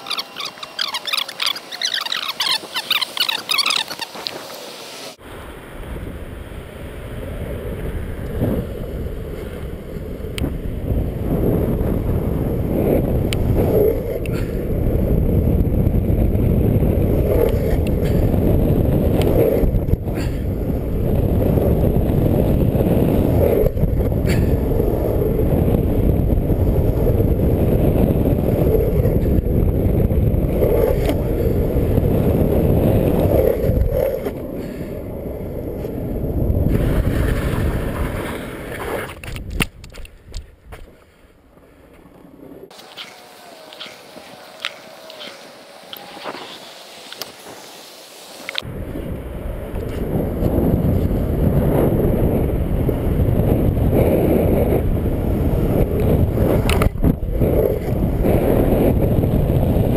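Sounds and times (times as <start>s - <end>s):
wheels rolling on asphalt: 0.0s - 59.9s
wind buffeting microphone: 0.0s - 59.9s
faint clicks: 44.6s - 46.4s, 47.1s - 47.4s.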